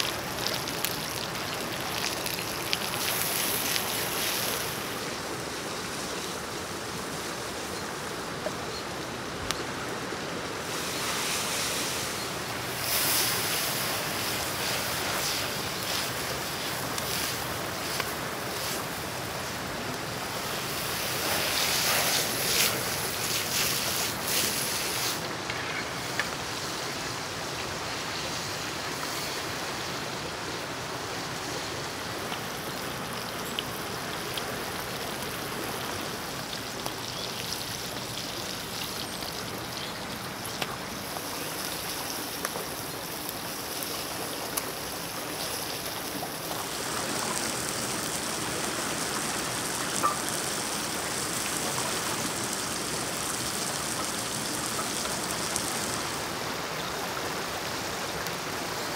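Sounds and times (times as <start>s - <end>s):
food frying in hot pan: 0.0s - 5.0s
river rushing: 0.0s - 58.9s.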